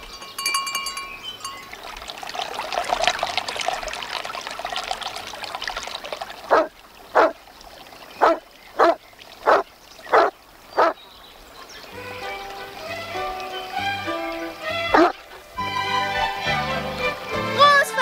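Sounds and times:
trickling stream: 0:00.0 - 0:18.0
dog lapping water: 0:01.7 - 0:15.7
dog barking: 0:06.5 - 0:07.4, 0:08.2 - 0:11.0, 0:14.9 - 0:15.2.

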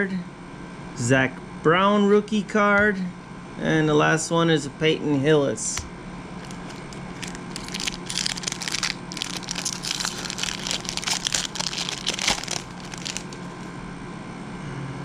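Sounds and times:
foil wrapper crackling: 0:06.4 - 0:13.7.

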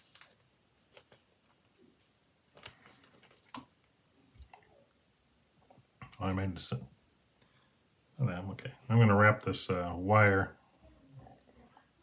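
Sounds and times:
faint clicks and taps: 0:00.1 - 0:05.0, 0:05.6 - 0:06.4.

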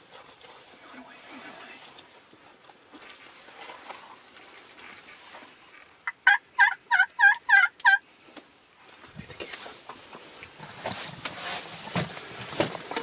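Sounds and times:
turkey yelping: 0:06.0 - 0:08.0.

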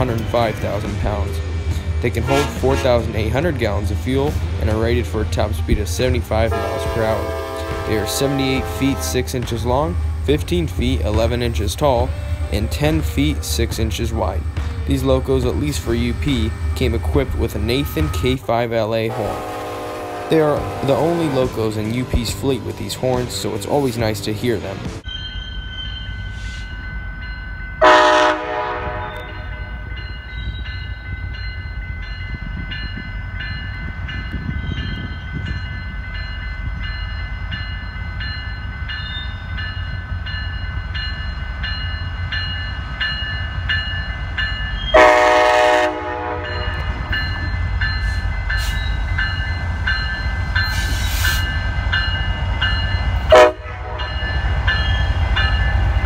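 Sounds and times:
diesel locomotive rumble: 0:00.0 - 0:25.1, 0:26.1 - 0:56.0
locomotive horn blasts: 0:02.2 - 0:03.2, 0:06.4 - 0:09.3, 0:19.1 - 0:21.7, 0:27.8 - 0:29.6, 0:44.9 - 0:46.9, 0:53.3 - 0:54.2.

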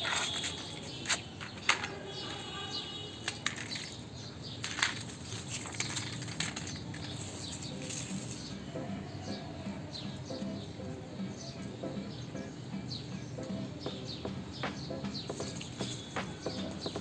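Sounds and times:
plastic toys clacking on concrete: 0:00.0 - 0:09.5, 0:15.2 - 0:17.0.

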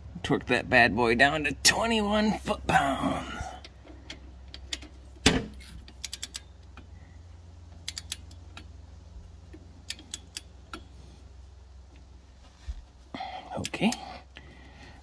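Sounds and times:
low hum: 0:00.0 - 0:15.0
light metallic clicks: 0:07.7 - 0:08.8, 0:09.5 - 0:11.0.

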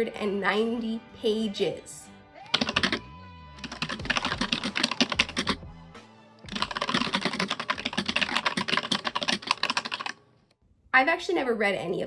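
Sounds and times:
fast keyboard typing: 0:02.5 - 0:03.0, 0:03.6 - 0:05.6, 0:06.5 - 0:10.2.

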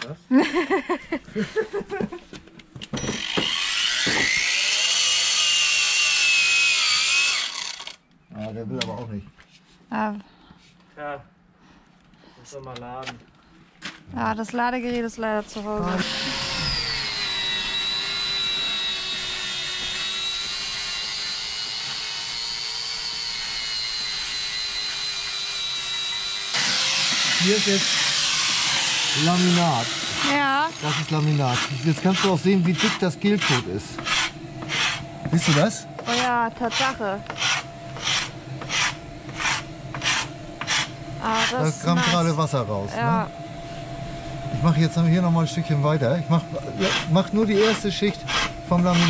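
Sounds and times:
cordless power tool motor whine: 0:02.8 - 0:08.1, 0:15.5 - 0:49.0.

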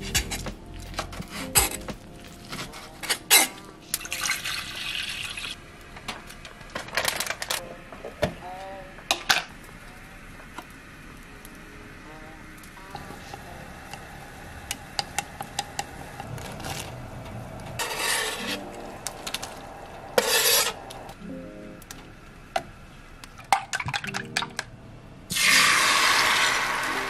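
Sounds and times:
egg sizzling in hot pan: 0:04.0 - 0:05.6, 0:25.3 - 0:27.0.

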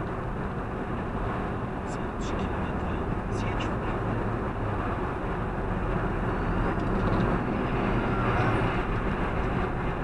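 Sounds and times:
car road and engine noise: 0:00.0 - 0:10.0.

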